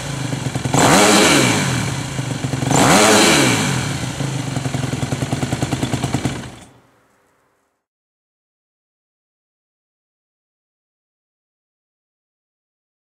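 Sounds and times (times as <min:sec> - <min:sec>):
motorcycle engine revving and idling: 0:00.0 - 0:06.9.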